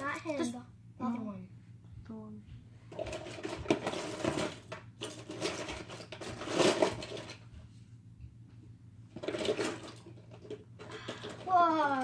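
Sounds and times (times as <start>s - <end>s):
plastic spinning tops clattering: 2.9s - 7.4s, 9.1s - 12.0s.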